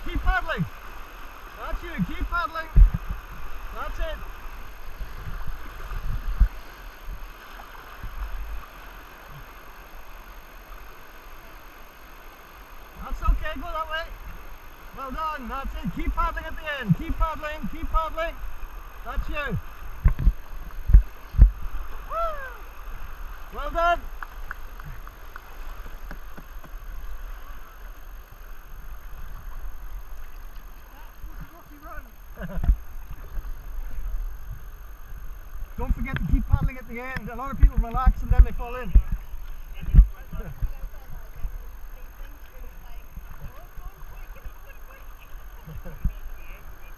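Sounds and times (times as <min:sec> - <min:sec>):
whitewater rushing: 0:00.0 - 0:34.3
paddle strokes splashing: 0:00.0 - 0:41.4
low thumps on microphone: 0:02.7 - 0:03.5, 0:05.0 - 0:06.6, 0:20.0 - 0:21.6, 0:37.6 - 0:40.8.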